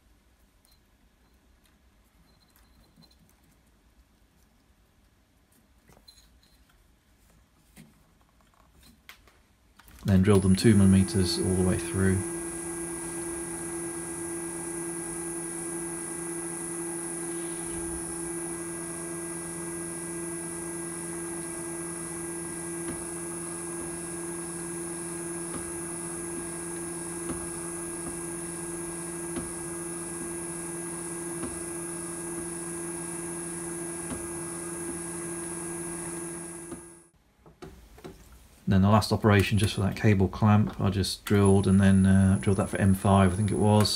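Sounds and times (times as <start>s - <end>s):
drill press whining: 10.1s - 37.1s, 42.2s - 42.8s.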